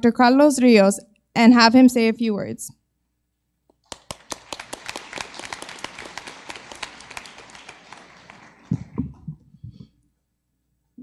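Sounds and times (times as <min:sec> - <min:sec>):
audience applauding: 0:03.8 - 0:09.4.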